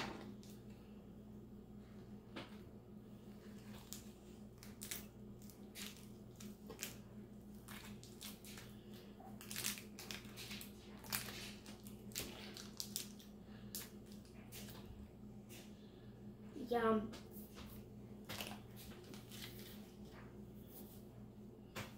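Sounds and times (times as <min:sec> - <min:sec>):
plastic wrapper crinkling: 0:03.6 - 0:14.8, 0:18.3 - 0:19.9.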